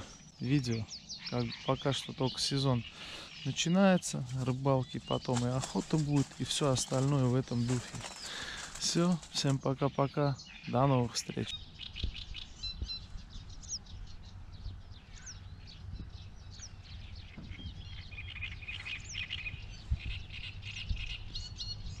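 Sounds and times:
songbirds chirping: 0.0 - 22.0
steady low rumble: 11.5 - 22.0.

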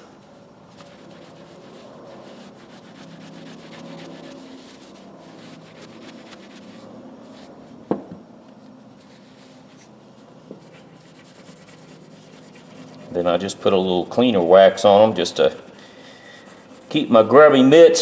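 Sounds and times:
cloth rubbing on screwdriver: 0.7 - 7.6, 9.0 - 14.0, 16.2 - 17.3
screwdriver laid down knock: 7.9 - 8.2.

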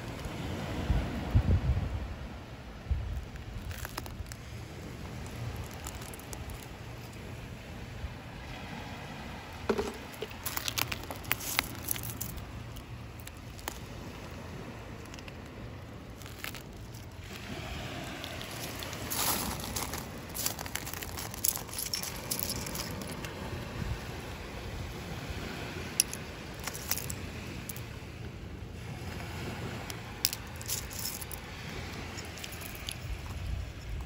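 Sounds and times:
seashells clicking and clattering: 3.6 - 4.4, 5.1 - 7.2, 9.7 - 14.0, 16.1 - 17.4, 18.0 - 23.4, 25.9 - 27.9, 29.8 - 33.4.

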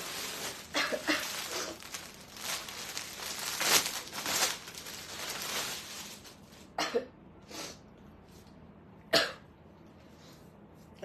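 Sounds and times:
plastic packaging crinkling: 0.0 - 6.7.

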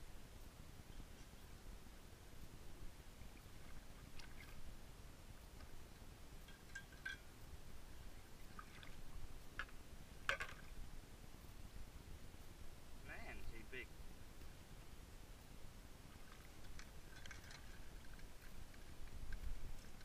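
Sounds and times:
small water splashes and drips: 3.5 - 4.6, 8.4 - 9.7.

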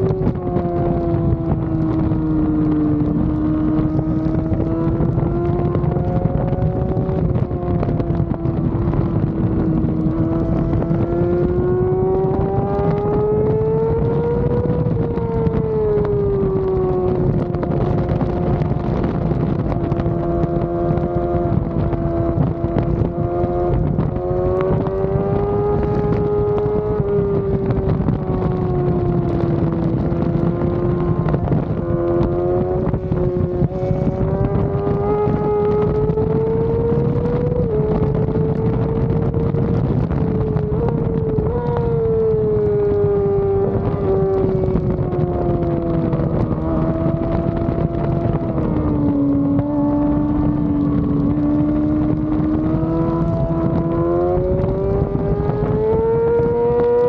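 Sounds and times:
motorcycle engine at high revs: 0.0 - 57.0
wind rushing on microphone: 0.0 - 57.0.

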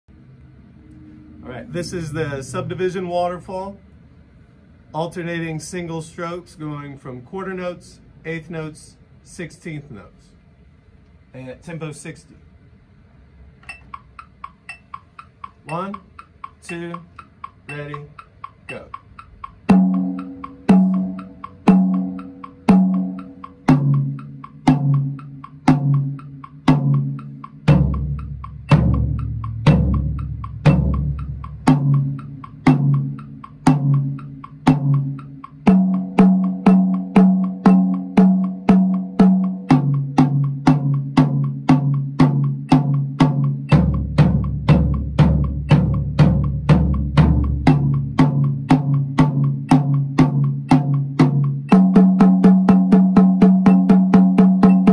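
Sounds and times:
drum strokes on toms: 13.5 - 54.9.

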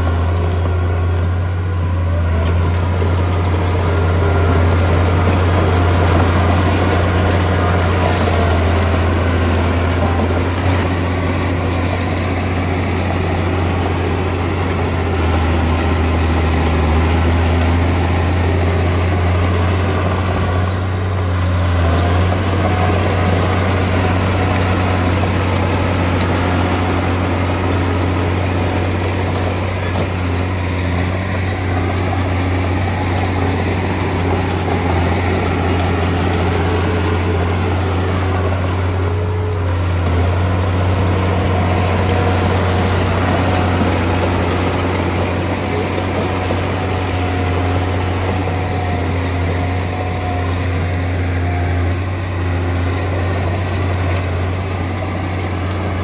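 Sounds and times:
heavy diesel engine running: 0.0 - 56.0.

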